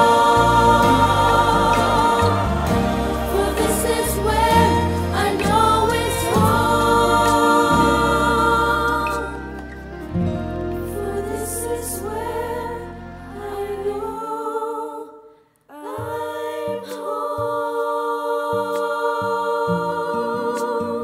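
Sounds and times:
soft instrumental backing: 0:00.0 - 0:14.2
young voices singing harmonies: 0:00.0 - 0:21.0.

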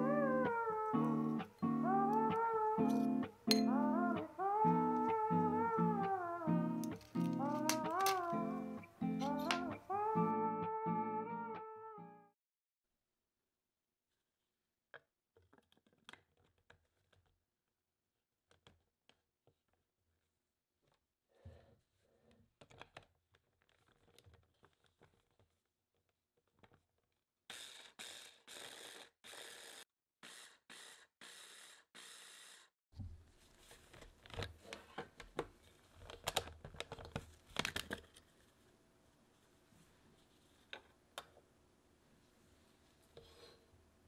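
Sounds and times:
plastic clicks of handling: 0:06.8 - 0:08.3.

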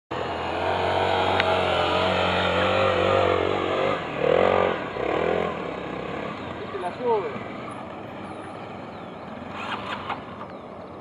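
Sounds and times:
motorcycle engine revving: 0:00.1 - 0:11.0.

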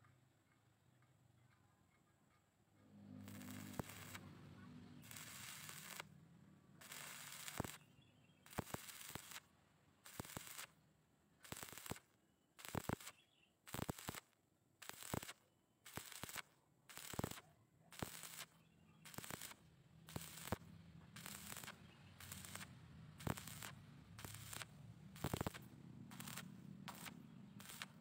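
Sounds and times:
welding arc crackling: 0:03.1 - 0:04.4, 0:05.0 - 0:06.1, 0:06.8 - 0:07.8, 0:08.5 - 0:10.7, 0:11.4 - 0:28.0.

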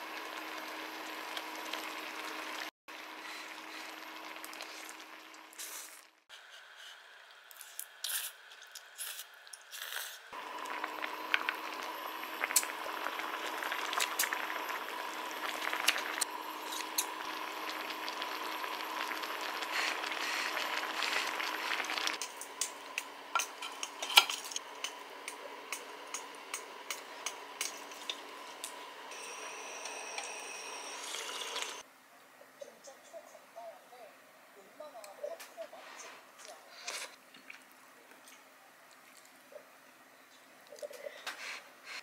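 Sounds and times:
sauce simmering and sizzling: 0:00.0 - 0:06.3, 0:10.3 - 0:23.9, 0:24.6 - 0:31.8.

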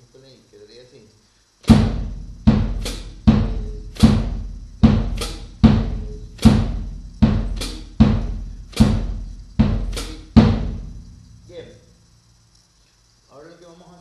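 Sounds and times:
snare drum: 0:01.6 - 0:11.0
bass drum strokes: 0:01.6 - 0:11.6
hi-hat pedal chicks: 0:01.6 - 0:11.6.

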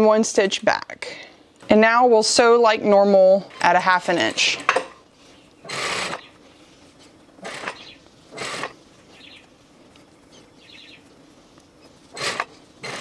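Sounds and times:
sewing machine rustling bursts: 0:05.6 - 0:06.3, 0:07.4 - 0:08.8, 0:12.1 - 0:13.0.

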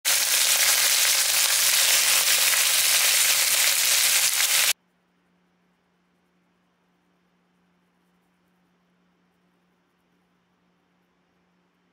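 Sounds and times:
food sizzling in butter: 0:00.1 - 0:04.8.

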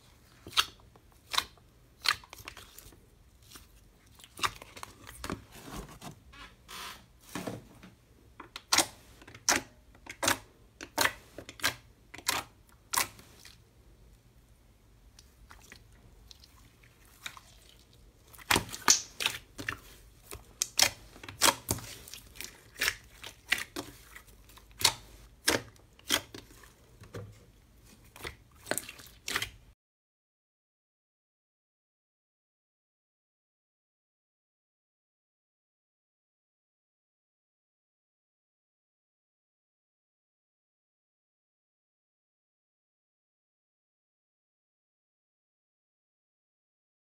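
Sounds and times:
slime wet clicks and pops: 0:18.4 - 0:19.4.

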